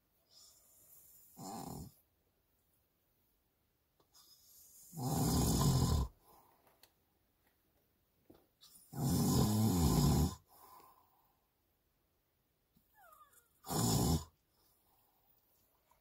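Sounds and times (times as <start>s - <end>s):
person snoring: 1.2s - 2.0s, 4.7s - 6.2s, 8.9s - 10.5s, 13.6s - 14.3s.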